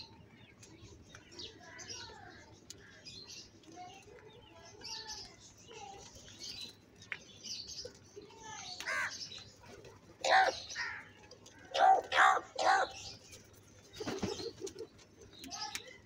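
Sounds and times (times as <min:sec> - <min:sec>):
crows cawing: 0:08.8 - 0:09.2, 0:10.2 - 0:11.1, 0:11.7 - 0:13.0.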